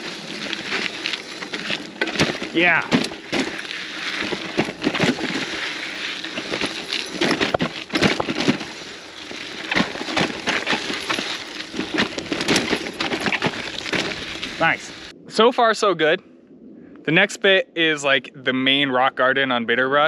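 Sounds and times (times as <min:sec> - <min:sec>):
bike knocking and rattling: 0:00.0 - 0:15.1
bike tyres crunching on rocks: 0:00.0 - 0:15.1
steady rush of noise: 0:00.0 - 0:15.6.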